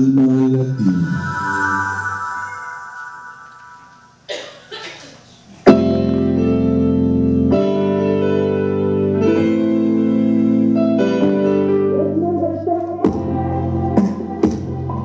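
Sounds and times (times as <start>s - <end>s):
sharp musical hit: 0.3s - 4.4s
keyboard chords music: 5.7s - 15.0s.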